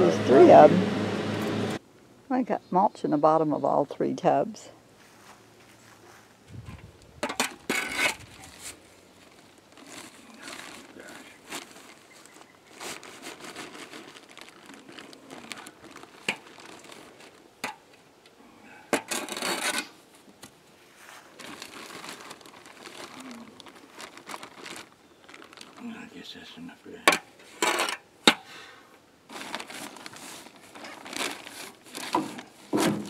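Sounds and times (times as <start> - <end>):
plastic bag rustling: 6.5 - 18.1, 19.0 - 26.2, 29.2 - 33.0
shovel scraping soil in metal tub: 7.2 - 8.8, 19.0 - 20.0.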